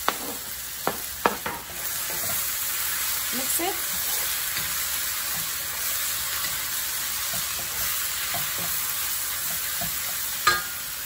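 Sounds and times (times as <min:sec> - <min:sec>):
meat sizzling in hot oil: 0:00.0 - 0:11.0
wooden spatula scraping a pan: 0:01.5 - 0:10.4.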